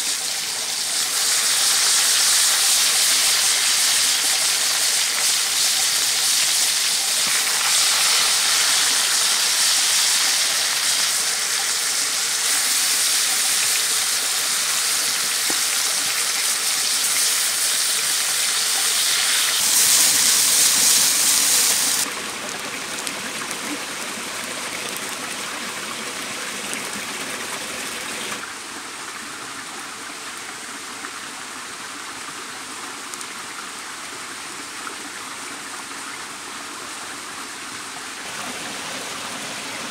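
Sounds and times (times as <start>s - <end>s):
liquid hissing in hot pan: 0.0s - 22.1s
meat sizzling in oil: 0.0s - 22.1s
stream and small waterfall: 0.0s - 39.9s.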